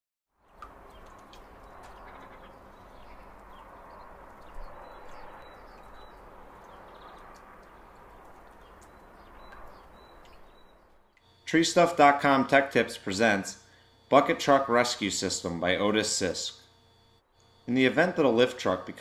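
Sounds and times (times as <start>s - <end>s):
high bird chirps: 0.9s - 11.4s.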